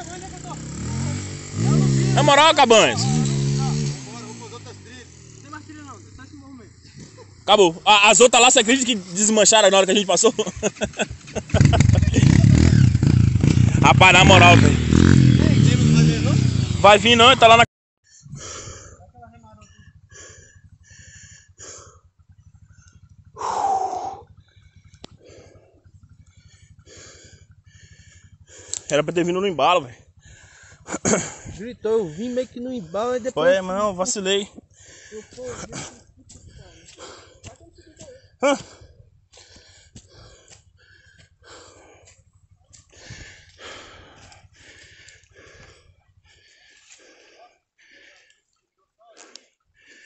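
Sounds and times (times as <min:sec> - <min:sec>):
motorcycle engine idling: 0:00.0 - 0:17.6, 0:18.2 - 0:47.2
person panting heavily: 0:18.0 - 0:28.9, 0:30.0 - 0:33.4, 0:34.5 - 0:50.0.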